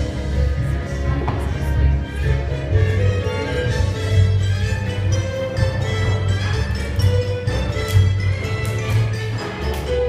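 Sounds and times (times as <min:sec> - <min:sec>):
orchestral strings over bass: 0:00.0 - 0:10.0.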